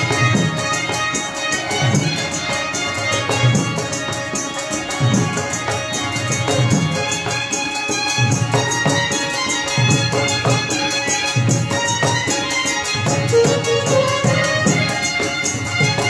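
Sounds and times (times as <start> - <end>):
dhol drum beating: 0.0 - 16.0
held melody line: 0.0 - 16.0
high ticking percussion: 0.0 - 16.0.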